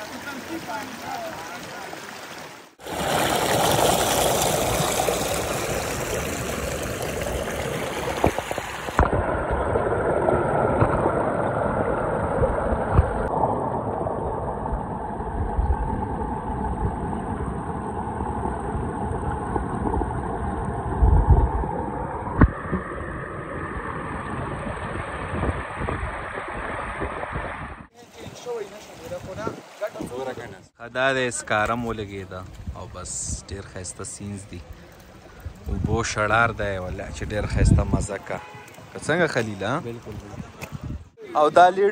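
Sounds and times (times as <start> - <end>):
stream rushing over rocks: 0.0 - 9.5.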